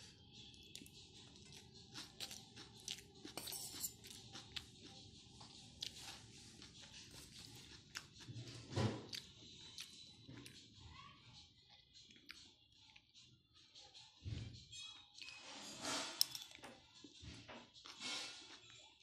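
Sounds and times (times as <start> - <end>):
clicks and crunches of eating: 0.6 - 10.6, 11.7 - 13.2
spoon scraping steel plate: 3.3 - 4.1, 15.3 - 16.5, 17.9 - 18.8.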